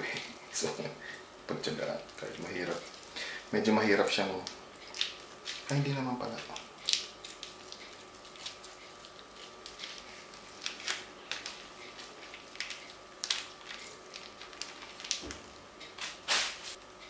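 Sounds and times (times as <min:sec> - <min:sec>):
plastic wrapper crinkling: 0:01.9 - 0:16.6.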